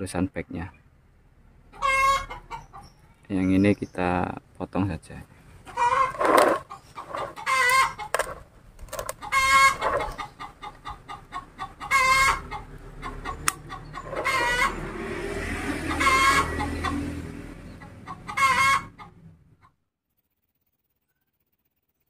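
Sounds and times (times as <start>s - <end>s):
chicken warbling calls: 1.7s - 3.2s, 5.6s - 8.2s, 9.1s - 14.9s, 15.7s - 17.2s, 17.8s - 19.3s.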